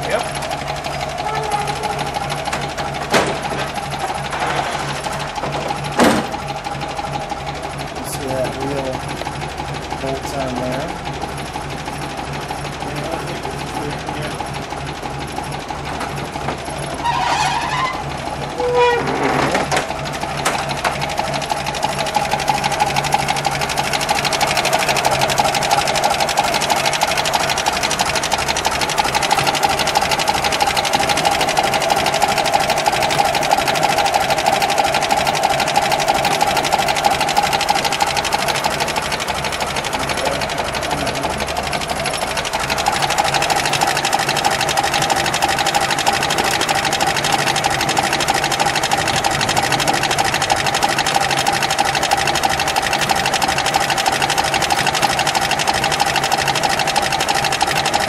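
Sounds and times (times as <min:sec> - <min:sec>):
car engine idling with clatter: 0:00.0 - 0:58.0.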